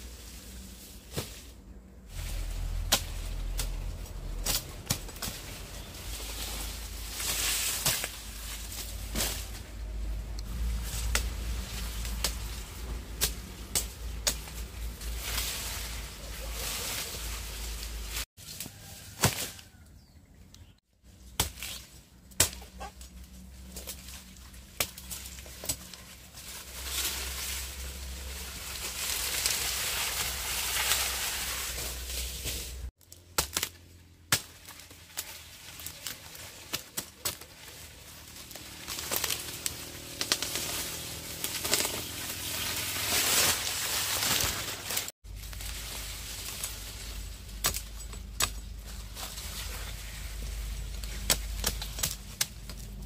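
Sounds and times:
cane leaves rustling: 0.0s - 19.8s, 20.6s - 53.0s
machete chopping cane: 18.6s - 19.6s, 21.3s - 23.0s, 33.3s - 35.3s, 47.5s - 48.7s, 51.1s - 52.9s.

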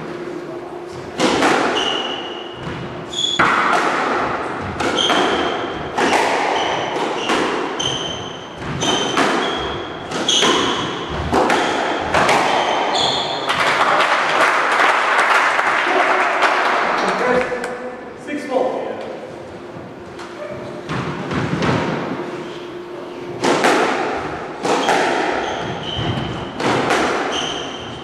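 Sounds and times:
squash ball hitting walls: 1.1s - 17.0s, 20.4s - 22.2s, 23.4s - 28.0s
shoes squeaking on wooden floor: 1.7s - 3.5s, 4.8s - 11.2s, 12.1s - 13.5s, 25.3s - 26.6s, 27.2s - 28.0s.

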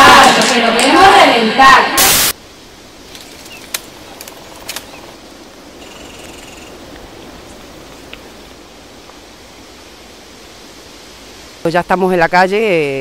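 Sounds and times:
steady background hiss: 0.0s - 13.0s
bird chirps: 3.4s - 3.8s, 4.8s - 5.1s, 5.8s - 6.8s.

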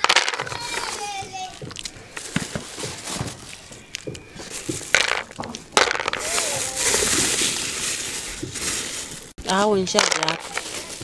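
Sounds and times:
nuts clicking and rattling: 0.0s - 2.7s, 3.4s - 6.6s, 9.5s - 11.0s
plastic bag rustling: 0.0s - 11.0s.

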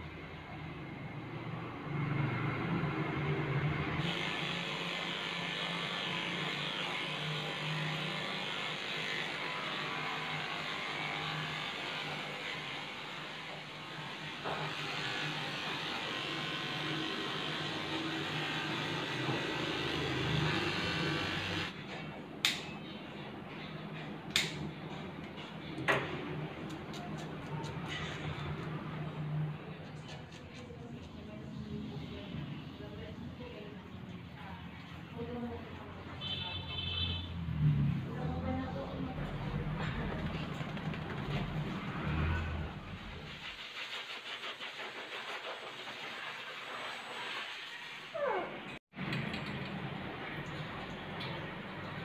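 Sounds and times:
electric hair clipper buzzing: 4.0s - 12.6s, 14.4s - 21.7s.

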